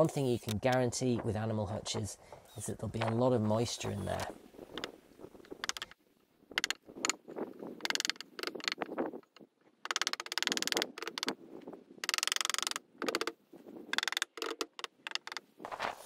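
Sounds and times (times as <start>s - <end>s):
drill driving screws into wood: 2.4s - 2.8s.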